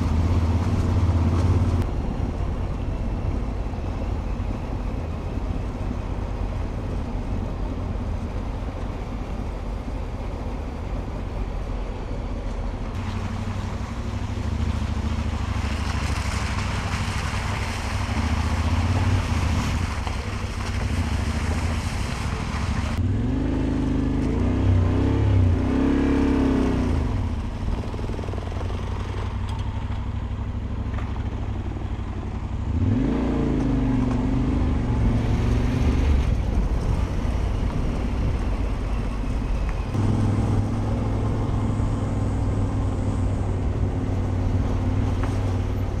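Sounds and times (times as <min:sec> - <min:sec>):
motorcycle engine revving: 0:18.0 - 0:29.4, 0:39.9 - 0:45.7.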